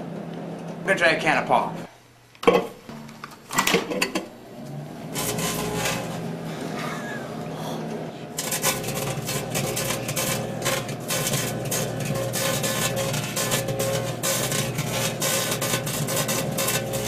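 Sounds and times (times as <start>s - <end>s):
microwave humming: 0.0s - 17.0s
sparks crackling: 8.4s - 17.0s.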